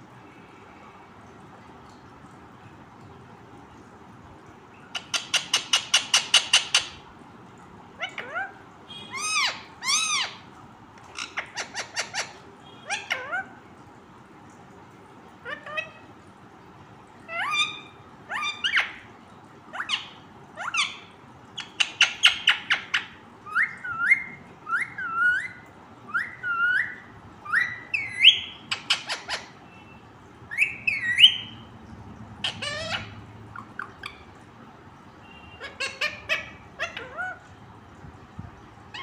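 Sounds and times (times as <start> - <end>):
parakeet squawking and whistling: 4.9 - 7.0, 8.0 - 10.5, 11.1 - 13.6, 15.4 - 16.1, 17.2 - 19.1, 19.7 - 34.4, 35.2 - 37.6.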